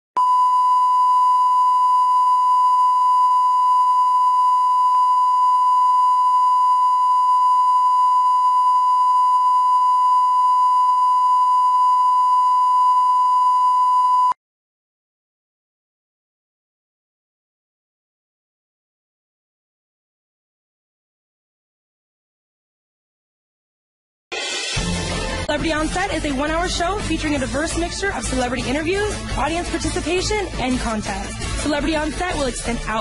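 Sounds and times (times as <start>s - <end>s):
test tone beep: 0.2s - 14.4s.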